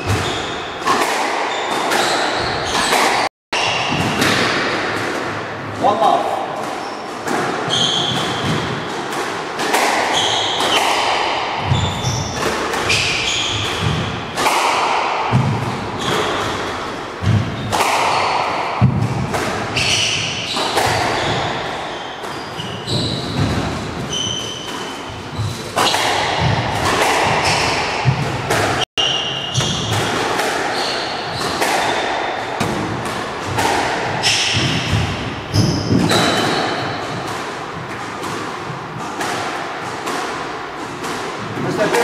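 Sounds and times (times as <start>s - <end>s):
squash ball hits echoing: 0.0s - 42.0s
shoes squeaking on wooden floor: 19.8s - 25.8s.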